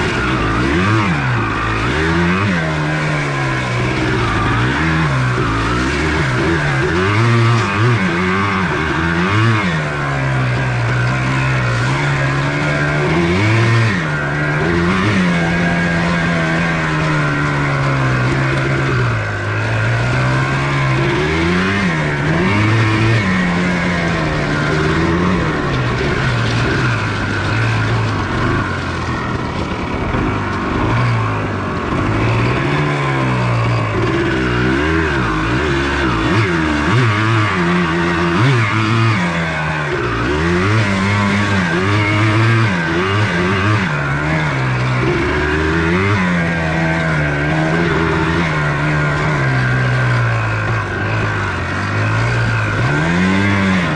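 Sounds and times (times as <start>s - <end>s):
two-stroke engine revving: 0.0s - 53.9s.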